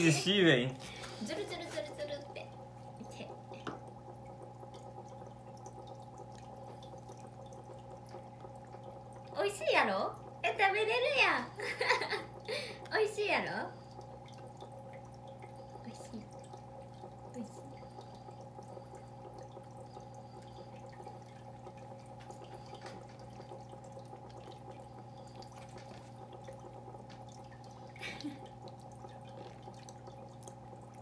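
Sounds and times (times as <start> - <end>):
steady low hum: 0.0 - 31.0
wet eating clicks and smacks: 28.5 - 31.0.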